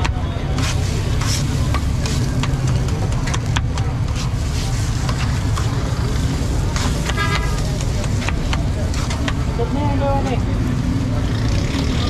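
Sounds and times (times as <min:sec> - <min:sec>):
metal spatula scraping griddle: 0:00.4 - 0:09.3.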